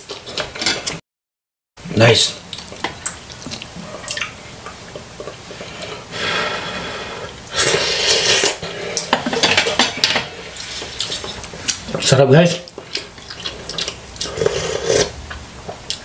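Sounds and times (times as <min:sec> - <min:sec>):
wet chewing: 0:02.5 - 0:05.4, 0:10.5 - 0:16.0
slurping noodles: 0:05.9 - 0:09.1, 0:13.0 - 0:15.2.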